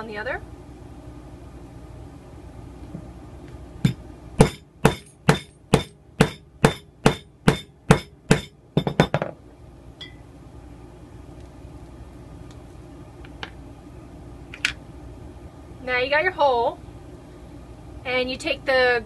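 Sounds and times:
hammer striking hole punch: 3.9s - 9.3s.

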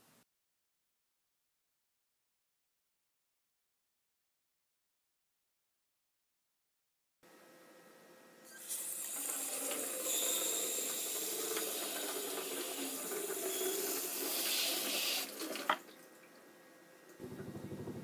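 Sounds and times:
water spraying into sink: 8.5s - 15.9s.

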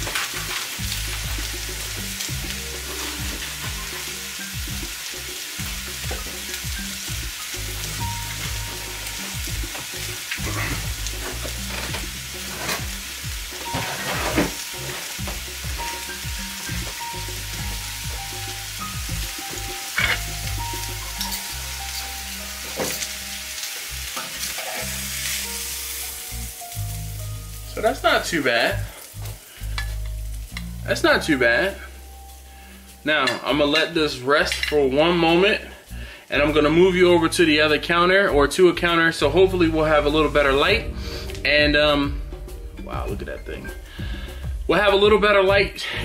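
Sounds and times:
steak sizzling in a pan: 0.0s - 38.3s.

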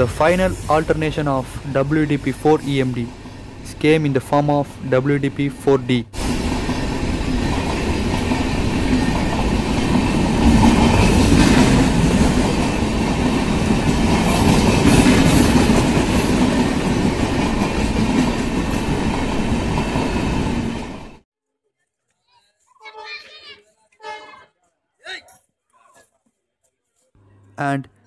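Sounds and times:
train coaches rumbling and clattering: 0.0s - 21.2s.

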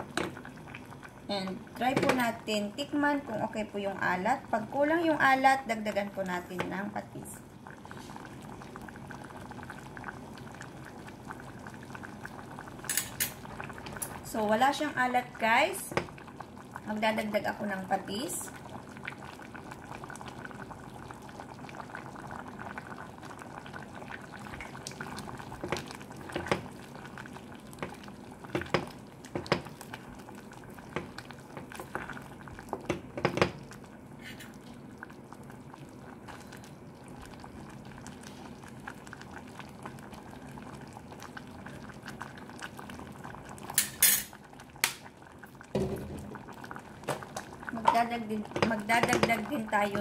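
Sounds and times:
soup boiling in a pot: 0.0s - 50.0s
wooden spoon knocking on metal pot: 1.9s - 2.3s, 28.5s - 29.7s, 32.7s - 33.6s, 47.8s - 49.4s.

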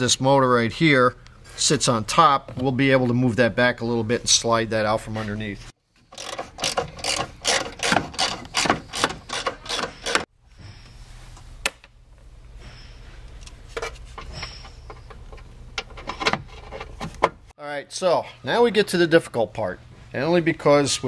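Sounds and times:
ratchet clicking: 6.1s - 10.2s.

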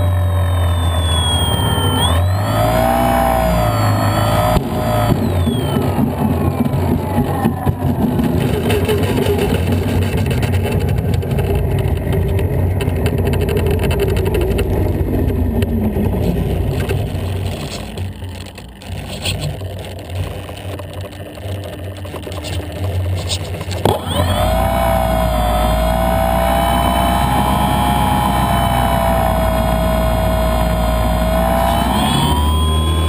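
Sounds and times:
electric motor whine: 0.0s - 10.4s, 20.2s - 33.0s
wheels rumbling on asphalt: 0.0s - 33.0s.

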